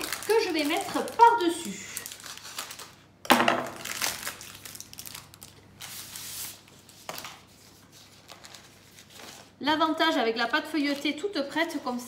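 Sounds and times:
plastic wrapper crinkling: 0.0 - 9.6.

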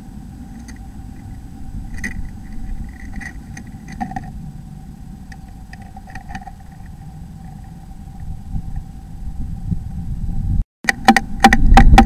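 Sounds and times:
low rumble: 0.0 - 10.6
faint steady tone: 0.0 - 12.0.

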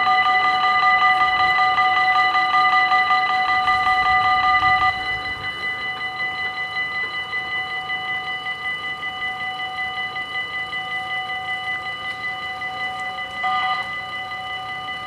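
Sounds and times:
level-crossing warning bells ringing: 0.0 - 15.0.

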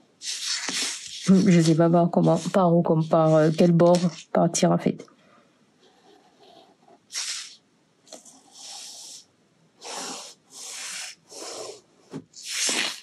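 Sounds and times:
pen scratching on paper: 0.2 - 4.3, 5.8 - 7.6, 8.2 - 9.2.

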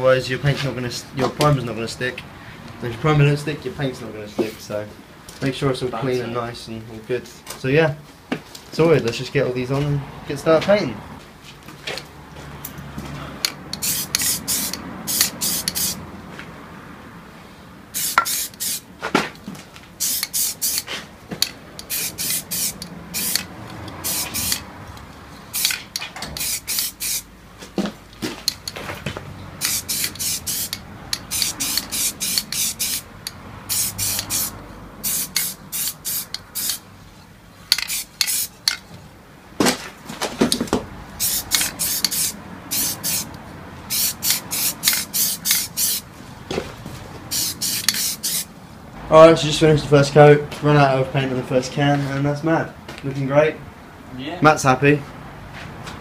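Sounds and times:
spray-paint can hissing: 13.7 - 16.0, 17.9 - 18.9, 20.0 - 20.9, 21.8 - 24.7, 25.5 - 27.3, 29.6 - 36.8, 37.8 - 38.6, 41.2 - 43.3, 43.9 - 46.1, 47.3 - 48.5.

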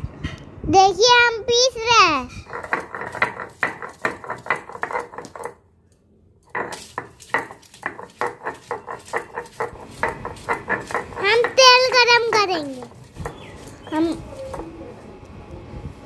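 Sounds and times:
stone roller grinding paste on stone: 2.4 - 5.6, 6.5 - 15.1.

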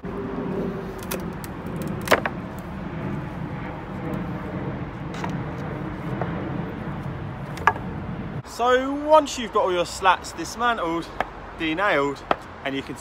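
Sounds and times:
steady low rumble: 0.0 - 8.6.

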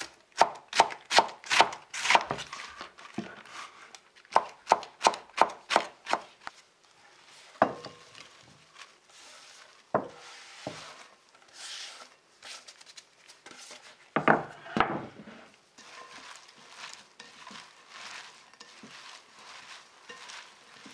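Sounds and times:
soft rustle of shredded cabbage: 2.4 - 4.2, 6.3 - 14.2, 15.2 - 20.9.

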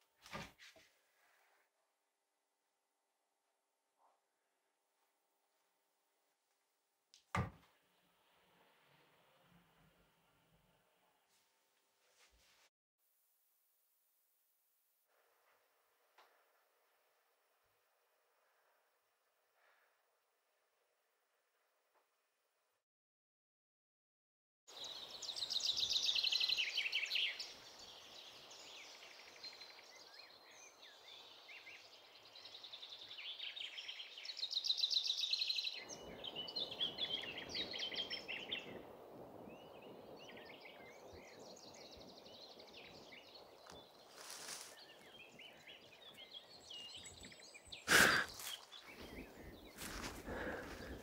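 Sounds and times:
birds chirping and trilling: 24.7 - 51.0.

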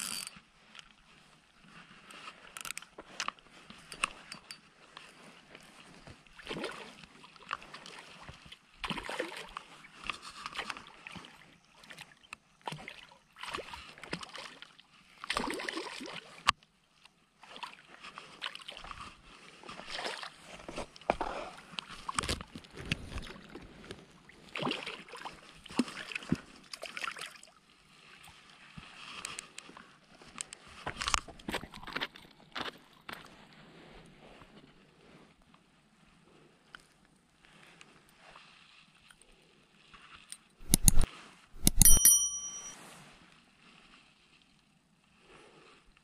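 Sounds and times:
sharp click: 40.6 - 42.7.

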